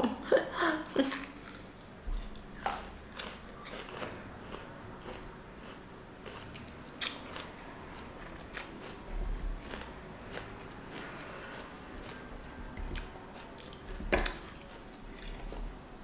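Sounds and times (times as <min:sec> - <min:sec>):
crisp crunching while chewing: 0:01.0 - 0:12.3.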